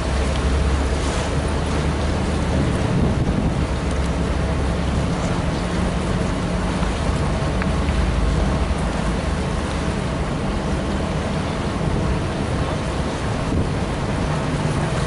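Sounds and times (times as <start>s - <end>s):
gusty wind buffeting microphone: 0.0s - 7.5s, 11.2s - 15.0s
ship engines humming: 0.0s - 15.0s.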